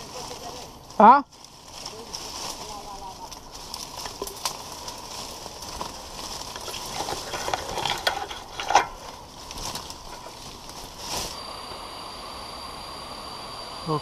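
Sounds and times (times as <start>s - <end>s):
leaves and twigs rustling: 0.0s - 11.4s
twigs snapping: 1.3s - 11.4s.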